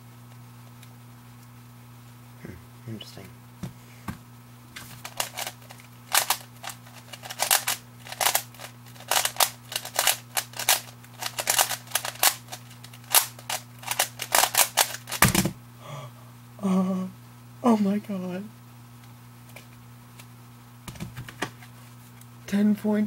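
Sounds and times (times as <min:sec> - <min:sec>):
puzzle cube clacking: 0:04.9 - 0:15.4
cube set down thud: 0:15.1 - 0:15.6.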